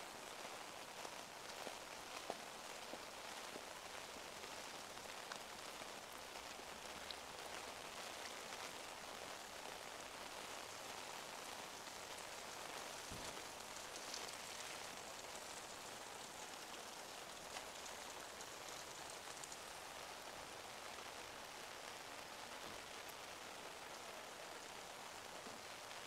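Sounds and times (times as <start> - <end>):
steady rain falling: 0.0 - 26.0.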